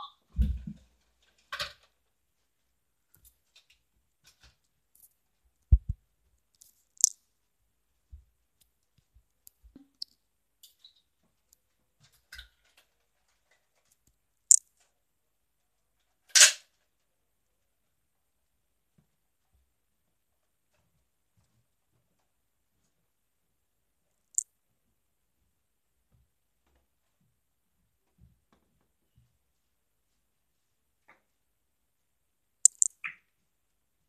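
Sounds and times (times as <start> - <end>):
sharp clicks and knocks: 32.7 - 32.9.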